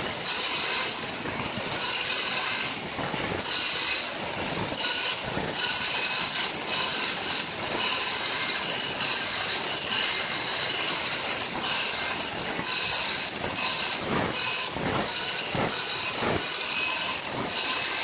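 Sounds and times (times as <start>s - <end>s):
angle grinder grinding stone: 0.0s - 18.0s.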